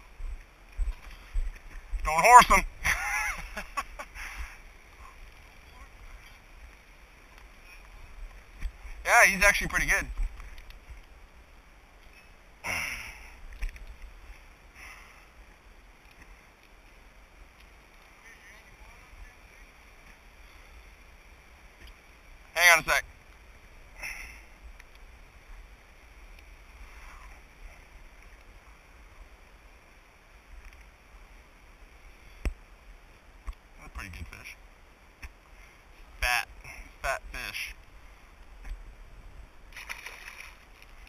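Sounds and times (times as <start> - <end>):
wind rumble on microphone: 0.0 - 2.9
faint clicks: 10.1 - 11.2, 13.4 - 14.2, 17.5 - 18.1, 21.8 - 22.0, 24.7 - 25.1, 26.3 - 26.5, 30.5 - 31.0.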